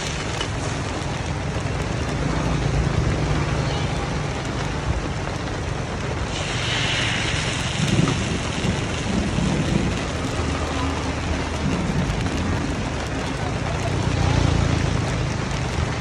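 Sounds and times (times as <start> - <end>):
batter sizzling in hot pan: 0.0 - 5.1, 5.8 - 11.4.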